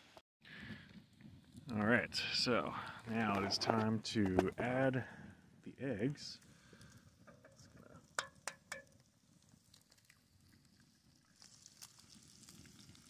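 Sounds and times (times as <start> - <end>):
wood fire crackling: 0.4 - 13.0
egg cracking on skillet: 6.7 - 13.0
bacon sizzling in pan: 11.3 - 13.0.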